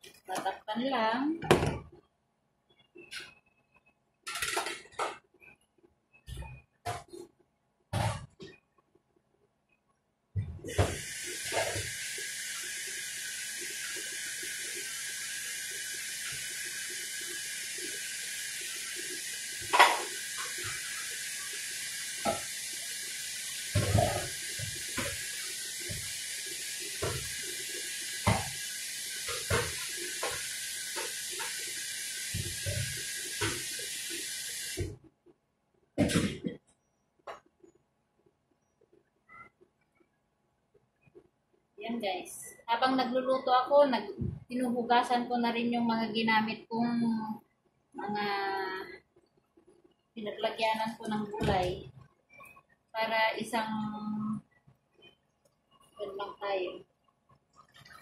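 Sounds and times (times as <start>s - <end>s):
tap running into sink: 10.7s - 12.8s, 19.5s - 21.0s, 22.0s - 22.6s, 23.5s - 35.0s.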